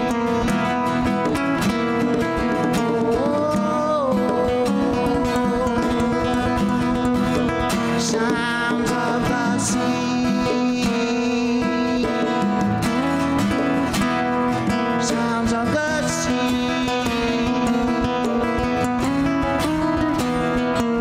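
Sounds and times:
conga hand drums: 0.0s - 21.0s
nylon-string classical guitar: 0.0s - 21.0s
steel-string acoustic guitar: 0.0s - 21.0s.

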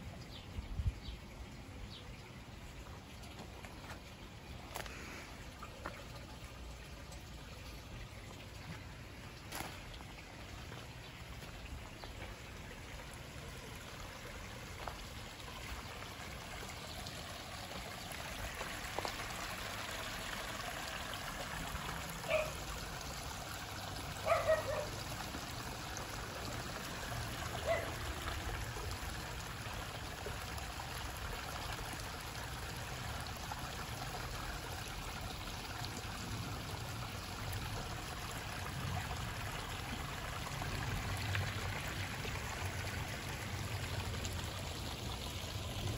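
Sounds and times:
waterfall splashing over rocks: 15.6s - 30.4s.

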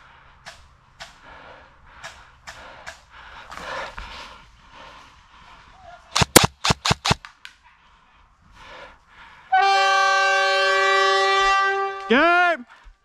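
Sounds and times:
airsoft gun shots: 6.2s - 7.2s
long horn blast: 9.5s - 12.4s.

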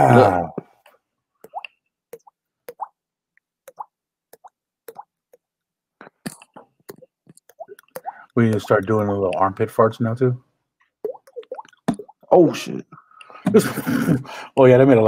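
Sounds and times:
mouth pops: 3.7s - 5.1s, 6.0s - 9.5s, 10.9s - 12.3s.

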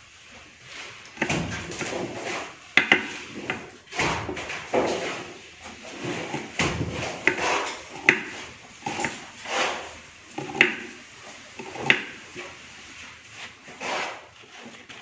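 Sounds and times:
knife scraping food: 0.8s - 4.1s, 4.7s - 12.6s, 13.4s - 15.0s.

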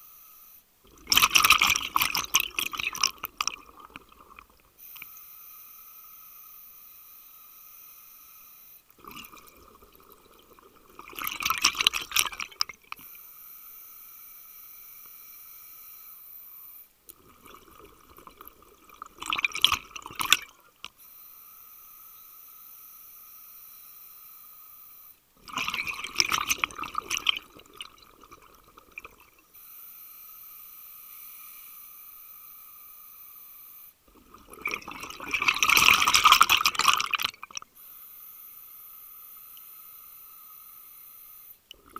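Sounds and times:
exhaled bubbles bursting: 0.9s - 4.6s, 9.0s - 13.0s, 17.1s - 20.6s, 25.4s - 29.4s, 34.1s - 37.6s.

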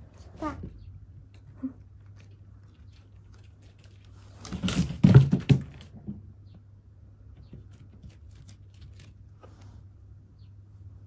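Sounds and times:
faint low hum: 0.0s - 11.0s
loud knocks and thumps: 4.5s - 6.3s.

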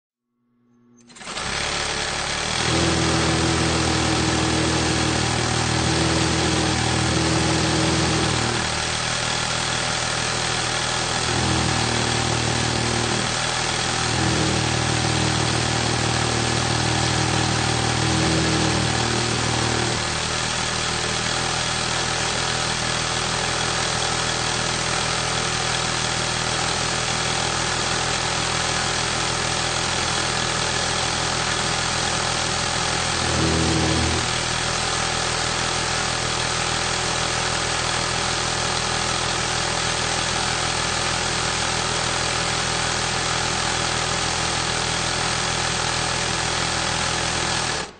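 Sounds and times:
sewing machine humming: 1.0s - 41.4s, 42.1s - 47.9s.

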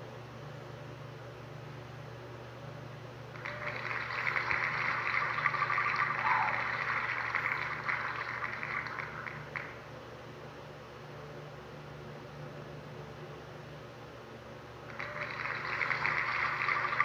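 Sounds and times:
low steady hum: 0.0s - 17.0s
spinning wheel ticking: 3.4s - 9.8s, 14.9s - 17.0s.

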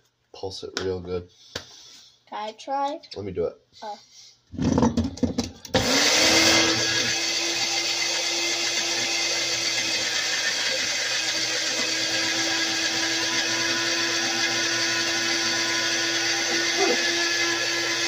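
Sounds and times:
blender motor running: 5.7s - 18.0s.

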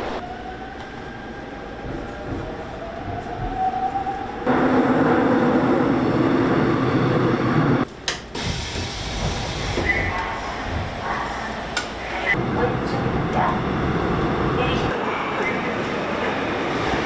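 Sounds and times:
subway train rumbling: 0.0s - 17.0s.

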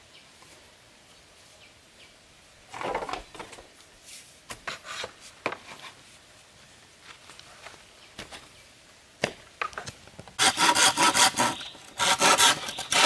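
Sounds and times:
bamboo poles scraping: 2.7s - 6.2s, 10.4s - 13.0s.

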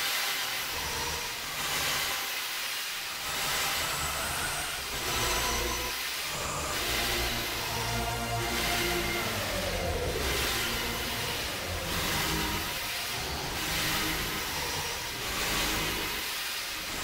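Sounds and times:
slowed-down ambient music: 4.2s - 16.3s
slow falling tone: 6.4s - 15.2s.

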